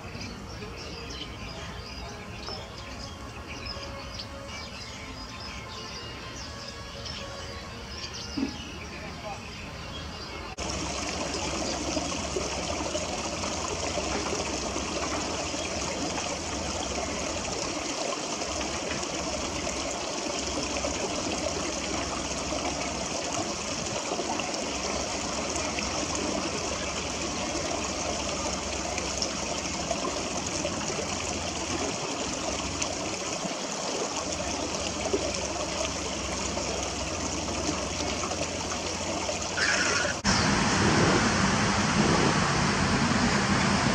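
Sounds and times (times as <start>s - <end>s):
water rushing in concrete channel: 10.5s - 43.9s.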